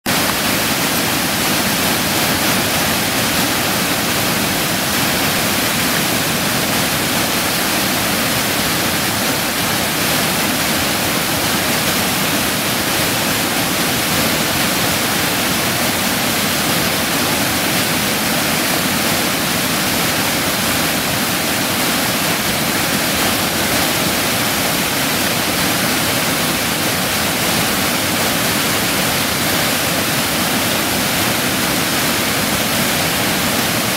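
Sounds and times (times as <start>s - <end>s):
waterfall rushing: 0.1s - 33.9s.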